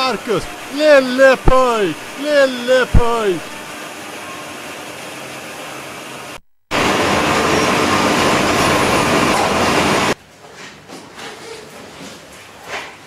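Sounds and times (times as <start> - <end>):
forklift truck running: 6.8 - 10.2.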